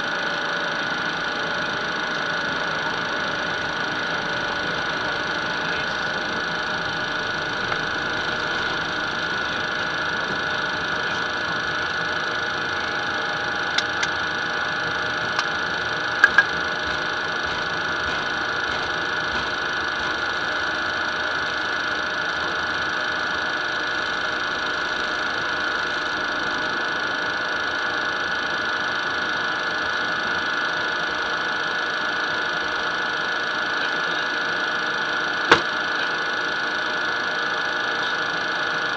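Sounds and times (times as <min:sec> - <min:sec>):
jet engines whining: 0:00.3 - 0:25.7
sharp clicks: 0:16.2 - 0:19.5.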